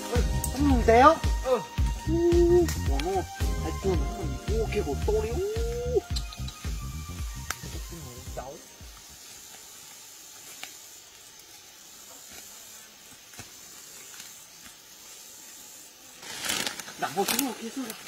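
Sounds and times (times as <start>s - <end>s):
faint outdoor hiss: 0.0s - 18.0s
rustling through dry leaves: 6.7s - 18.0s.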